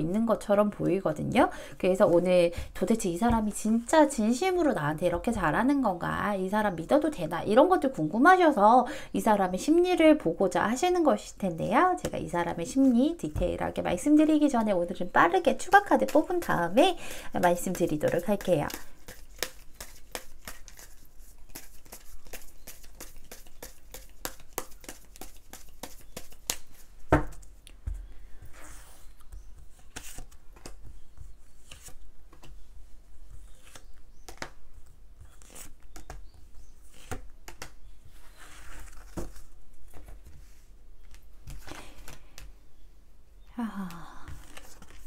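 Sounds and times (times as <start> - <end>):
cards being shuffled: 17.4 - 27.5, 31.6 - 32.6, 33.4 - 34.6, 35.2 - 36.2, 36.9 - 40.1, 44.3 - 45.0.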